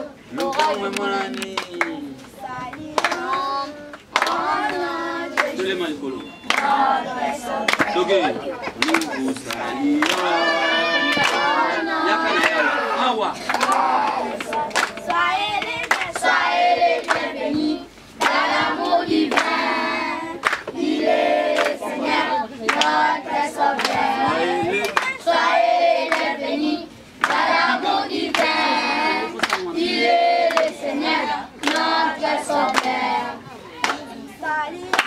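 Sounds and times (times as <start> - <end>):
hand claps: 0.4 - 5.7, 6.4 - 6.9, 7.6 - 8.0, 8.8 - 10.4, 11.1 - 11.5, 12.3 - 12.6, 13.4 - 16.4, 17.0 - 19.7, 20.4 - 20.8, 21.5 - 21.8, 22.6 - 23.0, 23.7 - 25.2, 26.1 - 26.3, 27.2 - 27.6, 28.3 - 28.7, 29.4 - 29.7, 30.5 - 30.8, 31.6 - 32.0, 32.6 - 33.0, 33.8 - 34.1
children singing together: 2.4 - 5.6, 6.3 - 8.1, 8.8 - 12.8, 13.5 - 35.0.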